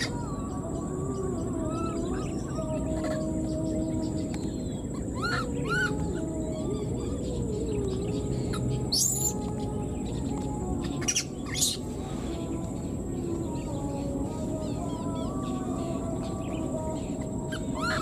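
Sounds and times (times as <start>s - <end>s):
baby monkey squeaking cries: 5.2s - 6.0s, 17.6s - 18.0s.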